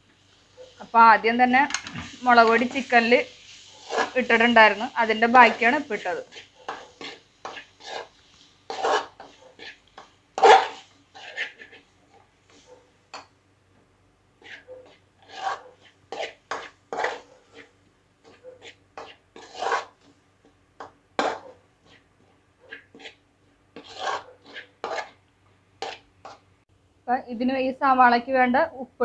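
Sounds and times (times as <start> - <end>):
metal spoon scraping pan: 0.6 - 13.3, 14.4 - 20.2, 20.8 - 23.2, 23.8 - 25.2, 25.8 - 26.4.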